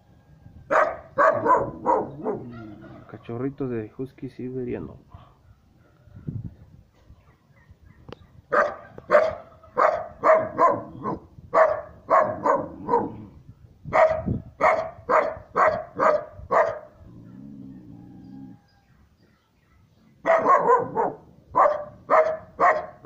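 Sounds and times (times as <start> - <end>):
puppy barking: 0.7 - 3.1, 7.2 - 13.3, 13.9 - 17.5, 20.2 - 23.0.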